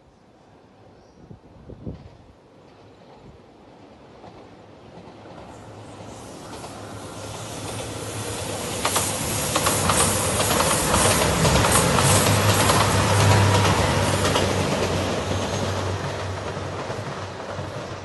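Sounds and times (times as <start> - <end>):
diesel train engine drone: 5.0 - 18.0
train wheels clacking over rail joints: 6.5 - 18.0.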